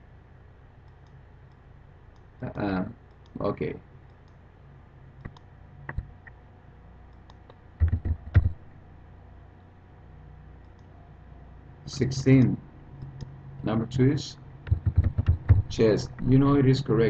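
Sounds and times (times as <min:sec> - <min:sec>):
keyboard typing: 0:07.3 - 0:08.6, 0:14.6 - 0:16.3
mouse clicks: 0:10.6 - 0:10.9.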